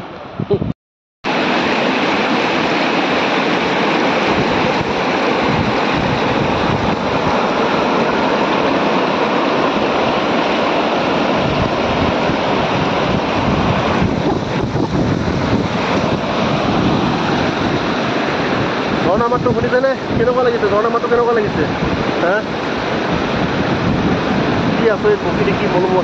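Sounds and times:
river rushing: 1.3 - 26.0.

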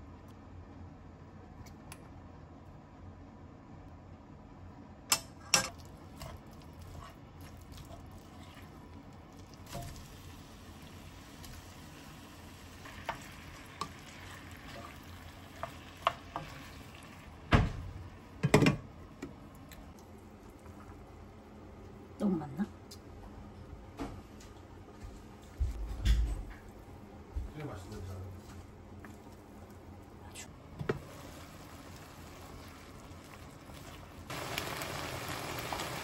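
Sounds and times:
food cooking hiss: 6.0 - 17.3, 30.1 - 36.0.

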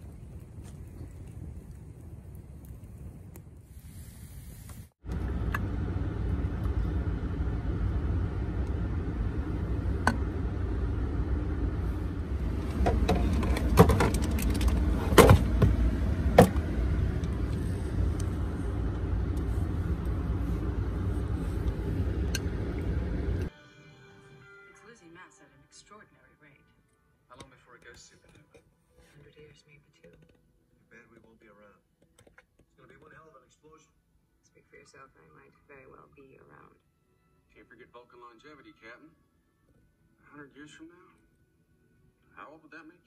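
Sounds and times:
engine idling rumble in cab: 5.1 - 23.5.

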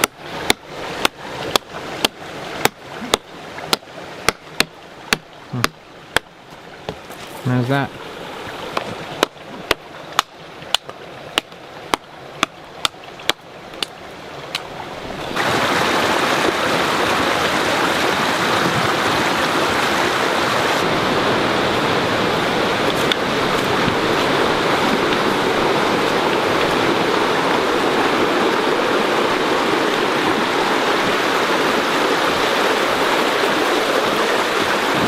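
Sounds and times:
hatchet chopping a branch: 0.0 - 6.3, 8.7 - 13.9
creek water rushing: 0.0 - 35.0.

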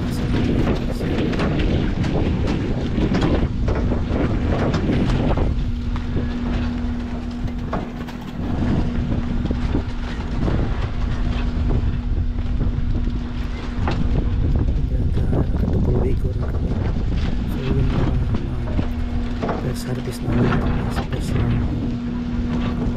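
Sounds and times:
machinery rattling and knocking: 0.0 - 22.9
tractor engine running: 0.0 - 22.9
wind on microphone: 0.0 - 22.9.

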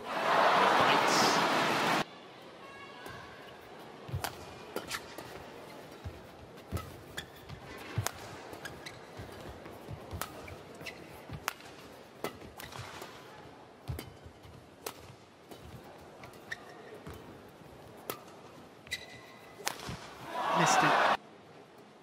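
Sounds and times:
arena background noise: 0.0 - 22.0
rackets striking shuttlecock: 7.9 - 8.9, 19.6 - 20.1.

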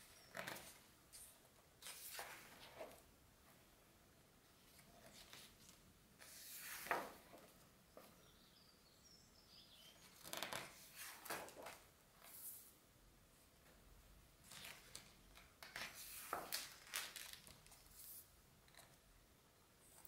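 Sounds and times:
book pages rustling: 0.0 - 3.0, 4.6 - 7.5, 10.1 - 12.7, 14.4 - 18.3.

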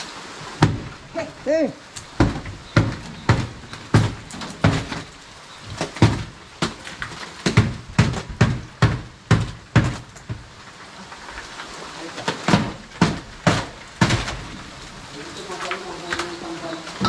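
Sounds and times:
hard knocks on ceiling boards: 0.6 - 0.9, 2.1 - 5.1, 5.7 - 6.8, 7.4 - 10.5, 12.4 - 14.4.

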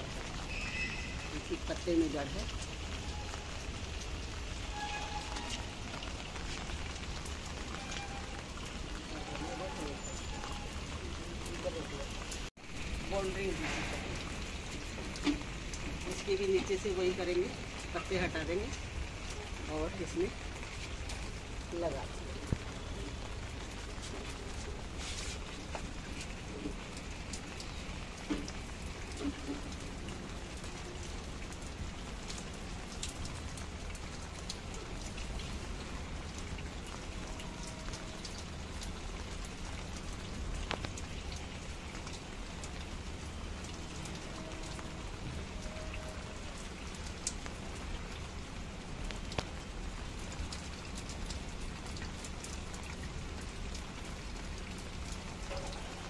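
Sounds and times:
steady rain falling: 0.0 - 56.0
drops ticking on wet surfaces: 13.1 - 56.0.

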